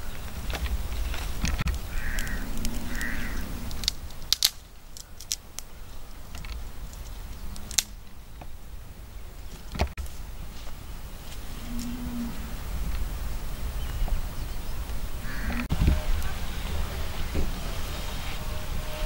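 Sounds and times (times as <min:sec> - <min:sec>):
low rumble: 0:00.0 - 0:19.0
sharp clicks: 0:00.1 - 0:05.7
crow cawing: 0:01.8 - 0:03.8, 0:15.2 - 0:16.9.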